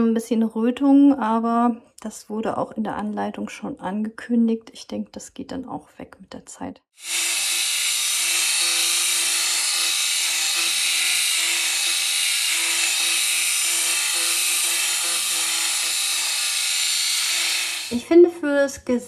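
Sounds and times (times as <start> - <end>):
epilator whirring: 7.0 - 18.0.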